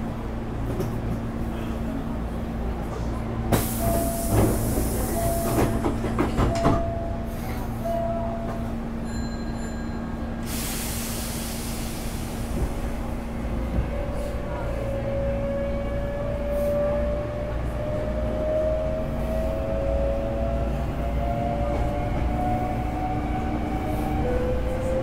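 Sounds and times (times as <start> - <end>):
train wheels clattering over rail joints: 3.6 - 6.9
hiss: 10.4 - 12.8.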